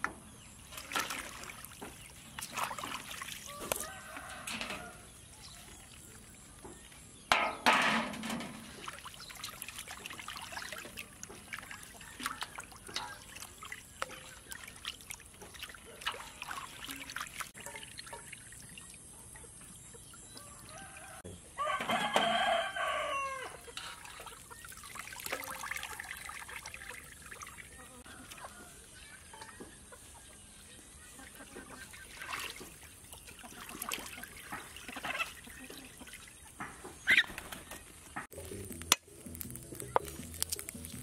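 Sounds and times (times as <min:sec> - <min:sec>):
water sloshing in bowl: 0:00.6 - 0:21.2, 0:23.5 - 0:37.8
rooster crowing: 0:03.5 - 0:05.1, 0:20.4 - 0:23.6.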